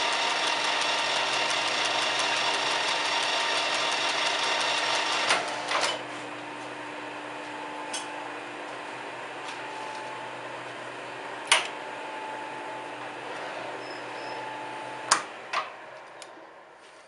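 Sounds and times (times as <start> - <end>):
lathe whirring with ticking: 0.0 - 6.0
lathe switch clacks: 11.5 - 11.8.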